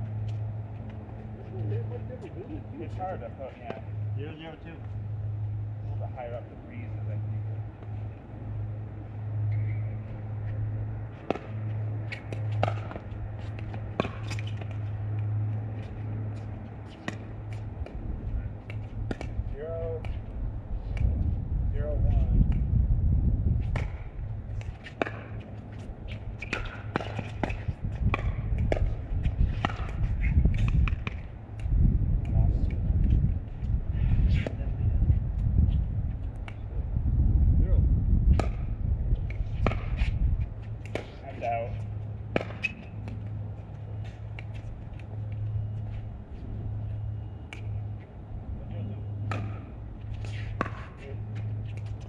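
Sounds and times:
steady low hum: 0.0 - 52.0
steady low rumble: 0.0 - 52.0
ball bouncing on court: 11.2 - 18.0, 18.6 - 20.2, 23.6 - 33.2, 38.3 - 43.4, 49.2 - 52.0.

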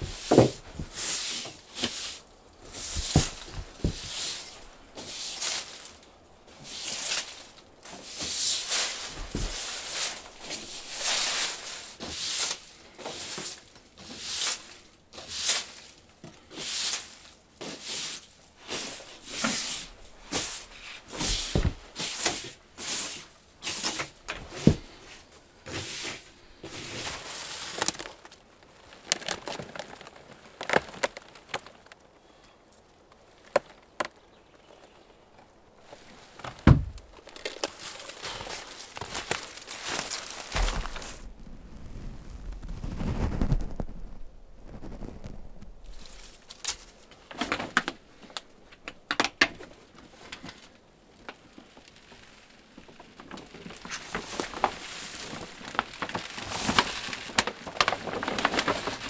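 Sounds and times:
branch brushing concrete floor: 0.0 - 28.4, 35.8 - 41.3, 53.5 - 59.0.

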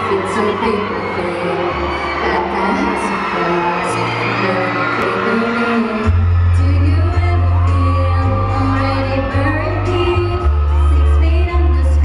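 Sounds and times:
woman singing over backing track: 0.0 - 12.0
heavy bass line: 6.0 - 12.0.

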